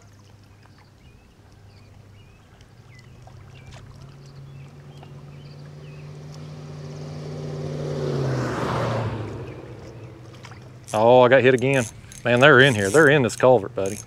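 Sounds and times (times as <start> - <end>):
vehicle engine hum passing: 2.8 - 14.0.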